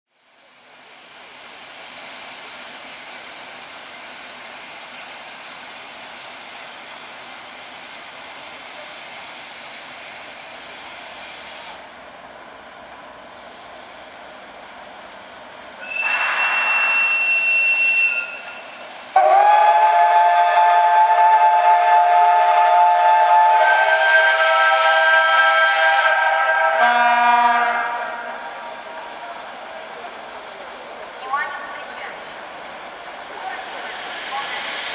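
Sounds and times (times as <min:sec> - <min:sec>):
steam locomotive hissing: 0:00.2 - 0:34.9
short high whistle: 0:15.8 - 0:18.8
loud chord steam whistle: 0:15.8 - 0:28.6.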